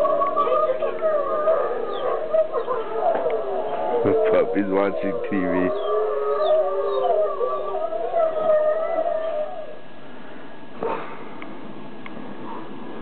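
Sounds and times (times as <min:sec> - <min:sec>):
wolves howling through speaker: 0:00.0 - 0:09.9.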